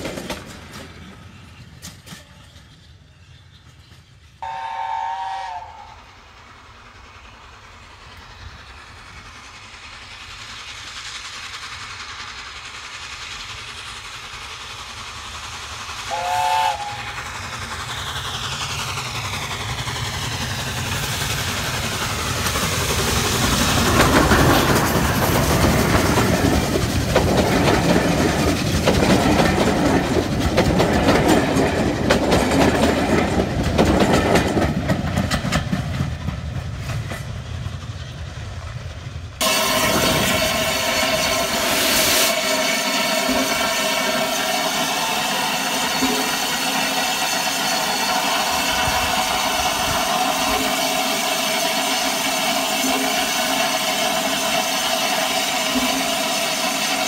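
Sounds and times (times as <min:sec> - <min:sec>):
steam locomotive passing: 0:00.0 - 0:57.0
steam locomotive whistle: 0:04.4 - 0:06.2, 0:16.0 - 0:17.3.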